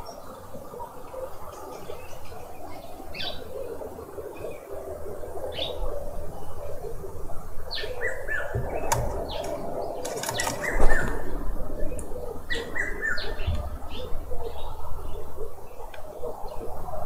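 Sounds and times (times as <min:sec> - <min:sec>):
birds chirping: 0:00.0 - 0:16.9
background noise: 0:00.0 - 0:17.0
bird clicks: 0:08.6 - 0:11.2.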